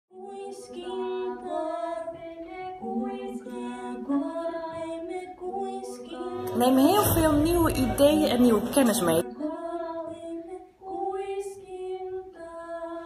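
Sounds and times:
held pitched notes music: 0:06.1 - 0:09.4.

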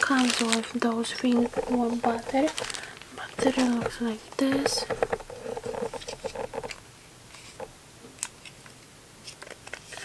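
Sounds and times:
light clicks and taps: 0:01.3 - 0:06.8.

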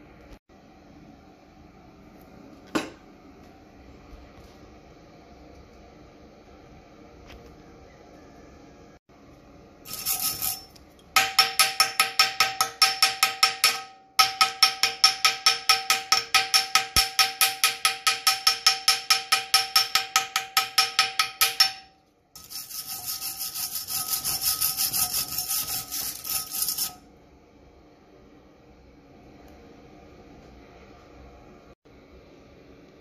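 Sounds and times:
steady ringing tone: 0:09.9 - 0:12.2
hand file rasping on steel: 0:22.4 - 0:27.0.

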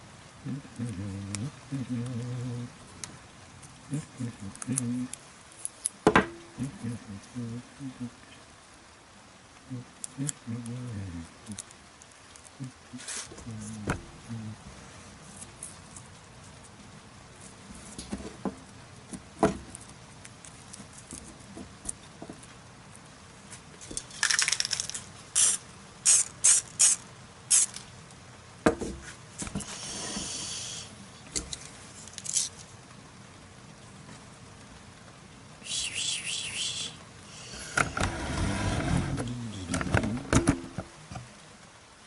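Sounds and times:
spray can hissing: 0:25.4 - 0:27.8.

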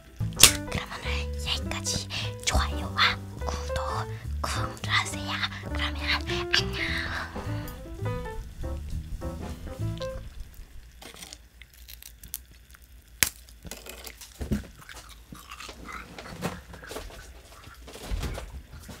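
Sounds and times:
crunching brittle candy: 0:10.9 - 0:19.0.

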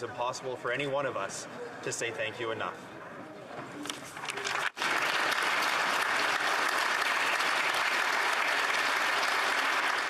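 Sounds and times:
crowd applauding: 0:04.3 - 0:10.0.

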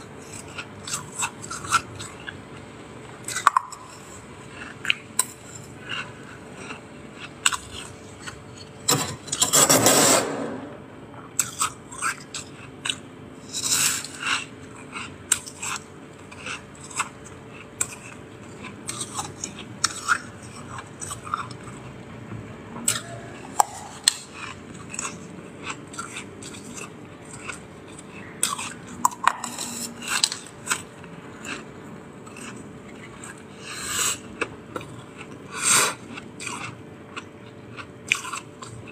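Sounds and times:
crunching and chewing frost: 0:00.0 - 0:09.7, 0:11.4 - 0:38.9
spoon scraping frost: 0:13.4 - 0:17.2, 0:22.9 - 0:31.7.

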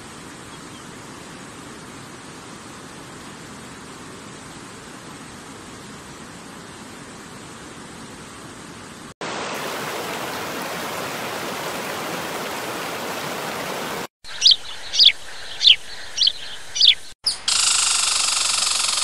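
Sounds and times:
falling water rushing: 0:09.2 - 0:14.1
rushing river water: 0:09.2 - 0:14.1
bird chirps: 0:14.3 - 0:17.9.

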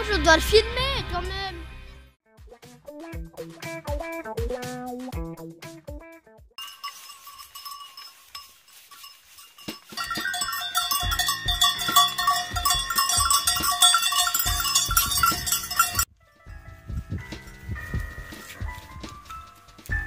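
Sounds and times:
goat bells ringing and clanking: 0:06.6 - 0:16.1.

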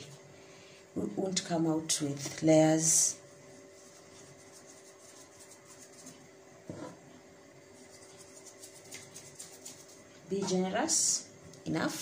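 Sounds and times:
pastry brush rubbing dough: 0:00.0 - 0:00.4, 0:02.8 - 0:06.4, 0:07.7 - 0:10.4
faint steady hum: 0:00.0 - 0:12.0.

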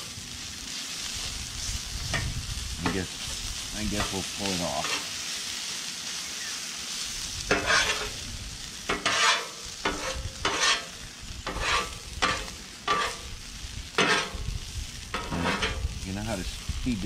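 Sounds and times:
frying sizzle: 0:00.0 - 0:17.0
metal spatulas scraping griddle: 0:03.9 - 0:05.2, 0:07.5 - 0:08.2, 0:08.9 - 0:13.4, 0:14.0 - 0:14.5, 0:15.1 - 0:16.0.

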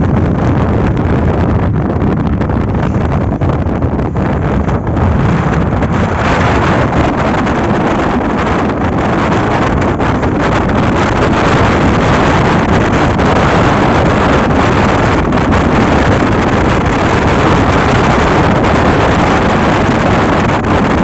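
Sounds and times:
wind on microphone: 0:00.0 - 0:21.0.

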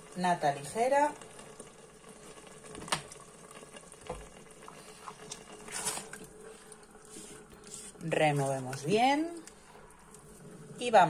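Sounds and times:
sauce bubbling softly: 0:00.0 - 0:11.0
spatula stirring sauce: 0:06.8 - 0:09.6.

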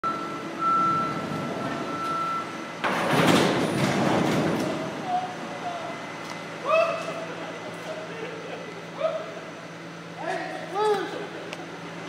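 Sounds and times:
sheet metal crashing and scraping: 0:02.9 - 0:04.8.

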